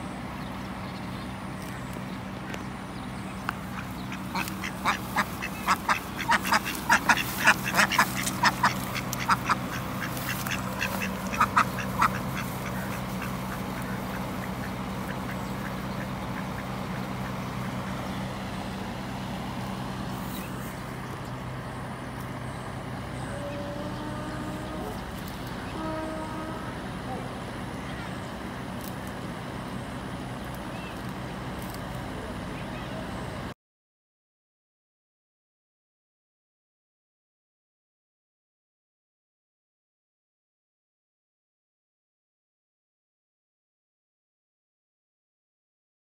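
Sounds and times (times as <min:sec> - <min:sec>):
steady low hum: 0:00.0 - 0:33.5
ducks quacking: 0:03.6 - 0:18.5.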